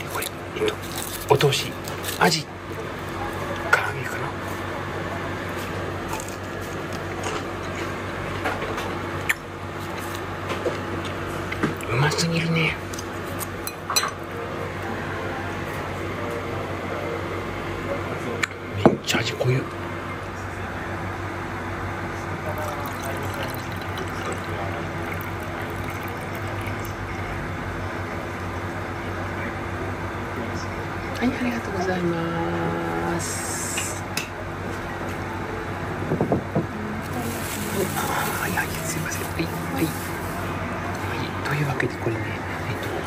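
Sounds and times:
liquid pouring into cup: 22.4s - 27.2s.

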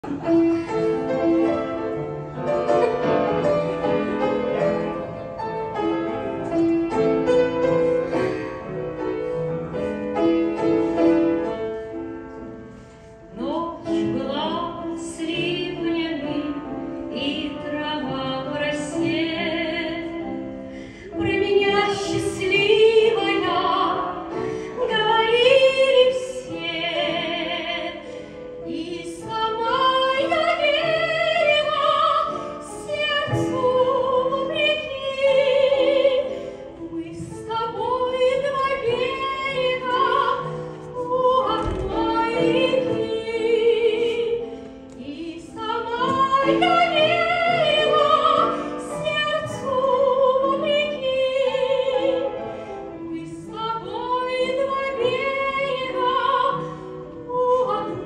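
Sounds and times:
grand piano playing: 0.0s - 58.0s
woman singing operatically: 24.8s - 28.0s, 28.7s - 44.4s, 45.0s - 52.4s, 53.0s - 58.0s.

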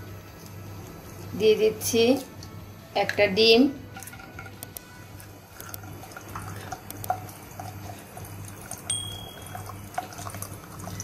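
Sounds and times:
egg sizzling in hot oil: 3.9s - 11.0s.

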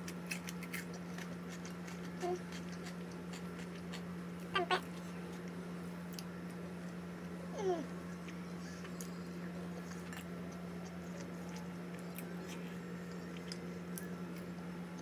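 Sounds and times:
chewing food: 0.0s - 4.1s, 8.2s - 15.0s
steady low hum: 0.0s - 15.0s.

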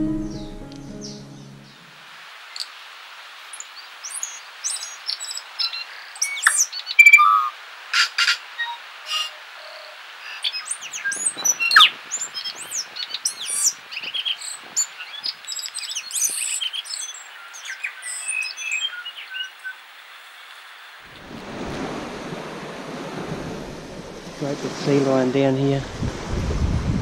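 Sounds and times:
bird singing whistles: 5.6s - 7.5s
wind on the microphone: 10.8s - 14.9s, 21.1s - 27.0s
waves washing on a beach: 21.0s - 27.0s.

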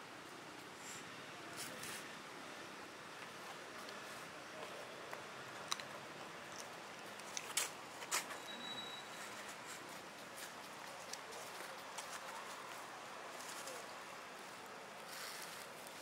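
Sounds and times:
outdoor background hiss: 0.0s - 16.0s
thin whistle: 8.4s - 9.4s.

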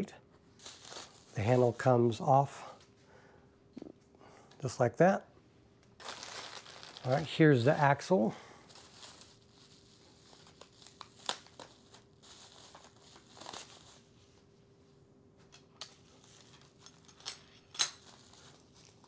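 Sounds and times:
plastic bag crinkling: 0.6s - 2.0s, 6.0s - 7.6s, 8.6s - 14.1s, 16.2s - 19.0s.

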